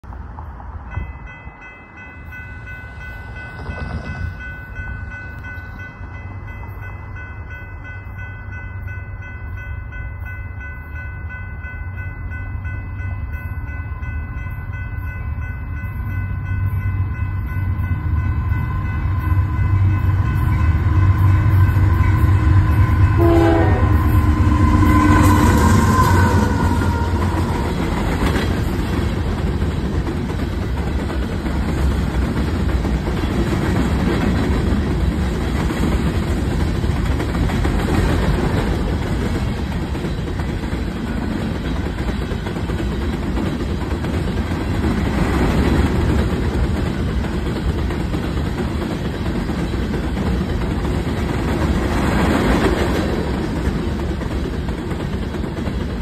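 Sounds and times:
freight train rumbling past: 0:00.0 - 0:56.0
train horn: 0:18.3 - 0:28.2.

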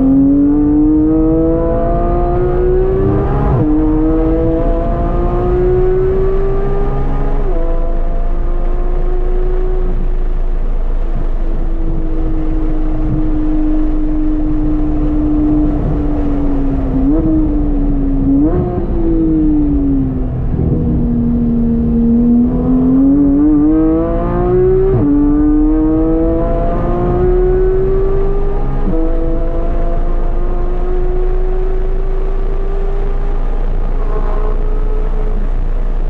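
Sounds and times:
sports car engine revving: 0:00.0 - 0:36.0.

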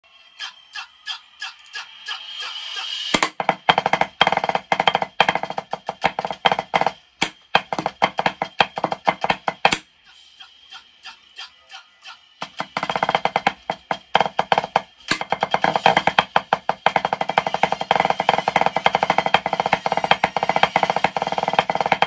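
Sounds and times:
snare drum rudimental roll: 0:03.1 - 0:09.8, 0:12.4 - 0:22.0.

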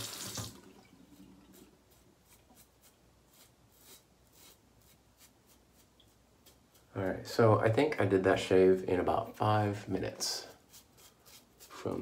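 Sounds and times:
tap water running into sink: 0:00.0 - 0:01.0
scratchy razor strokes: 0:01.5 - 0:07.2, 0:10.3 - 0:12.0.

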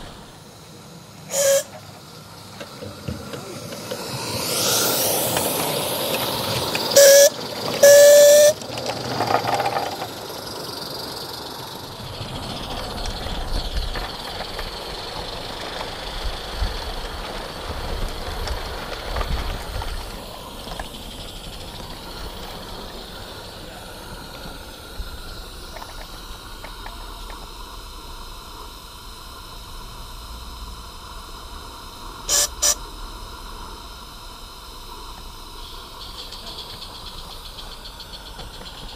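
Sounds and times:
train wheels rattling on track: 0:00.0 - 0:28.7, 0:34.9 - 0:38.9
steam locomotive hissing: 0:00.0 - 0:38.9
locomotive whistle: 0:01.2 - 0:01.8, 0:06.2 - 0:09.0, 0:32.2 - 0:33.1.

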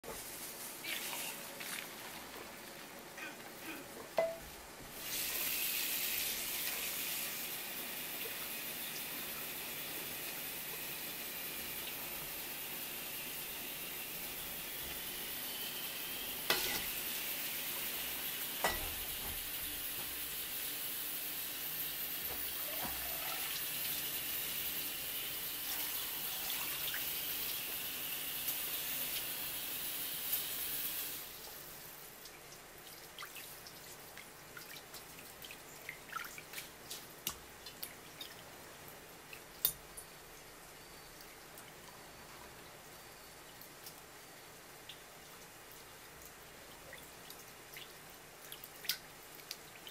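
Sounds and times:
tap water running into metal bowl: 0:04.2 - 0:31.6
water splashing and dripping: 0:31.2 - 0:40.5, 0:41.2 - 0:49.9.

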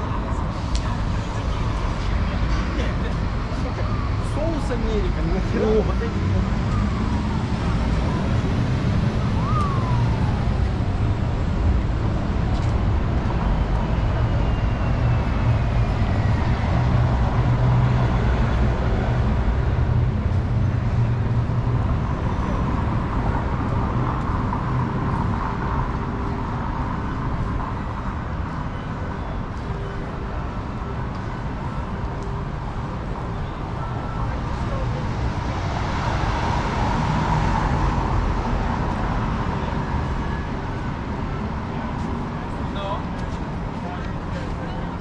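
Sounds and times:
vehicles passing with engine rumble: 0:00.0 - 0:45.0.

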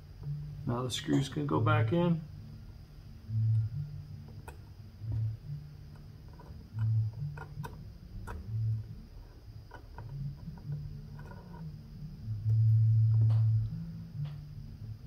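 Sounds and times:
low hum in held notes: 0:00.0 - 0:15.0.

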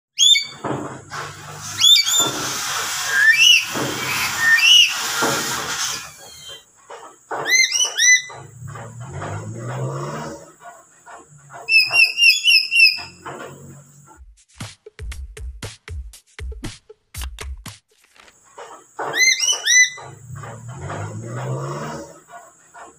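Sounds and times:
parrot screeching: 0:00.2 - 0:00.6, 0:01.8 - 0:02.4, 0:03.0 - 0:05.1, 0:05.8 - 0:06.6, 0:07.4 - 0:08.4, 0:11.7 - 0:13.2, 0:19.1 - 0:20.1.

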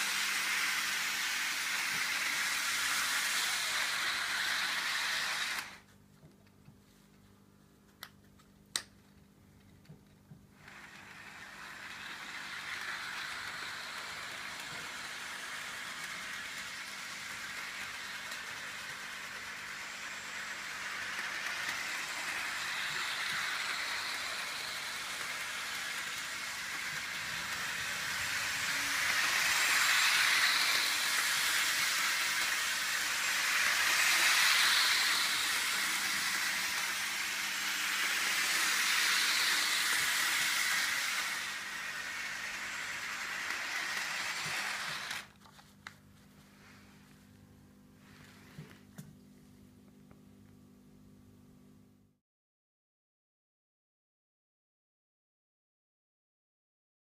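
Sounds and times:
model train whirring on track: 0:00.0 - 0:05.8, 0:10.6 - 0:45.4.

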